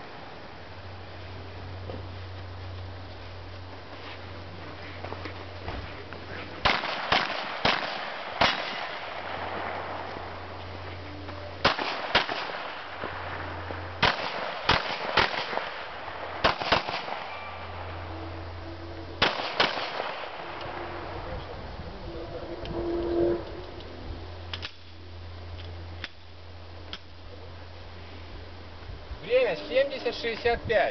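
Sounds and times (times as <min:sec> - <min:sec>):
pistol shots: 0:06.6 - 0:10.1, 0:11.6 - 0:13.4, 0:14.0 - 0:17.8, 0:19.2 - 0:20.8.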